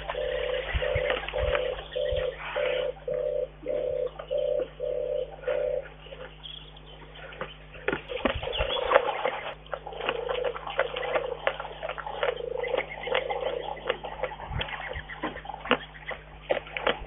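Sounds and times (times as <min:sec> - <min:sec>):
bear licking and chewing: 0:07.2 - 0:17.0.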